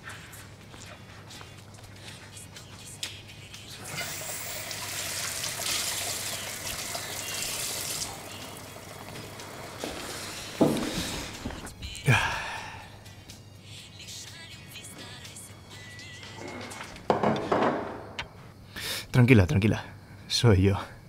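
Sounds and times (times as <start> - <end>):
tap running into sink: 9.8 - 11.1.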